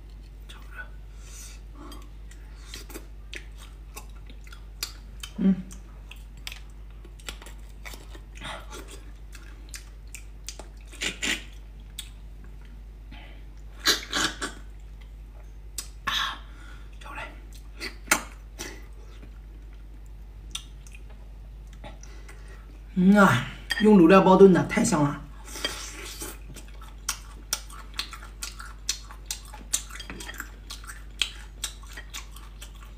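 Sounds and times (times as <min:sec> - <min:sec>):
faint low hum: 0:00.0 - 0:32.9
chewing food: 0:01.9 - 0:12.8, 0:18.6 - 0:22.5, 0:26.2 - 0:32.9.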